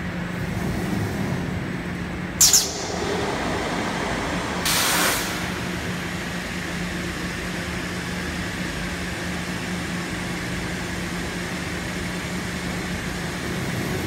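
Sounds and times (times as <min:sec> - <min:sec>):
thermoforming machine humming: 0:00.0 - 0:14.0
short hiss: 0:04.7 - 0:05.5.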